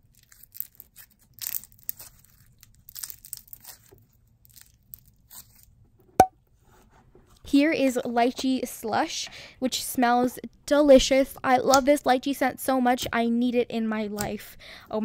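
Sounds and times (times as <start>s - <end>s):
crunchy slime squelches: 0.0s - 5.8s.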